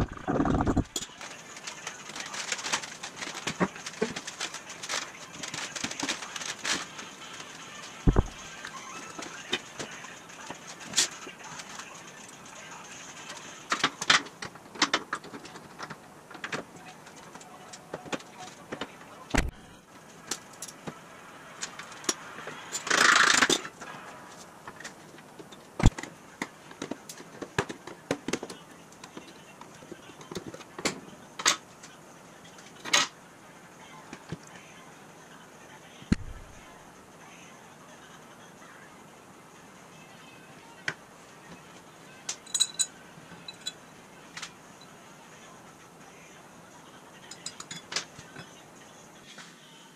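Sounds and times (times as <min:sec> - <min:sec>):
metal clinks and knocks: 0:42.4 - 0:43.8
steel plate clinking: 0:42.5 - 0:42.9.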